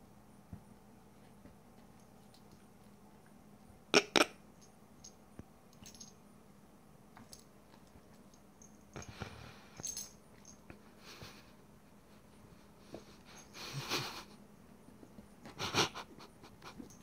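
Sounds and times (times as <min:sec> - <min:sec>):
small clicks and scuffs: 0:00.6 - 0:03.4.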